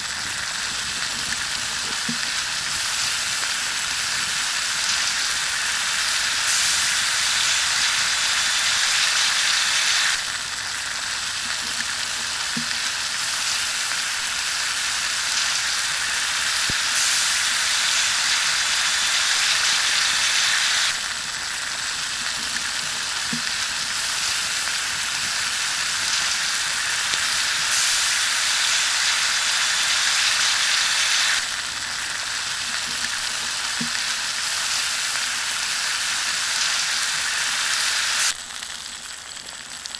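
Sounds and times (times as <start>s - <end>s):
meat sizzling on a hot rock: 0.0s - 39.9s.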